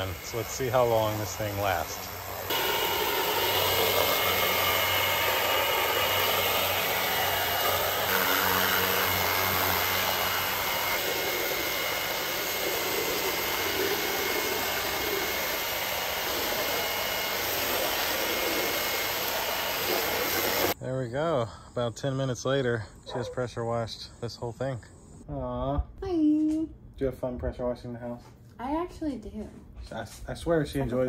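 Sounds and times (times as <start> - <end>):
pressure washer pump humming: 0.0 - 20.8
water jet hissing: 0.0 - 20.8.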